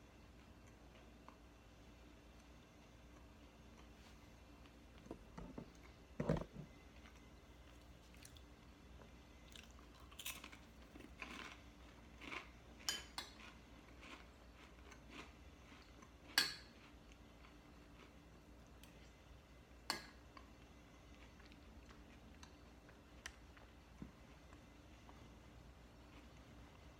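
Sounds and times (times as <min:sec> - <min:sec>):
person chewing crunchy cracker: 0:07.0 - 0:08.5, 0:09.5 - 0:19.1.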